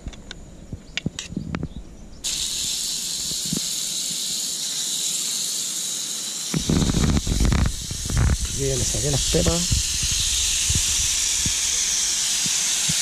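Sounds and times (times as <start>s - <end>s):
meat sizzling on griddle: 2.2s - 13.0s.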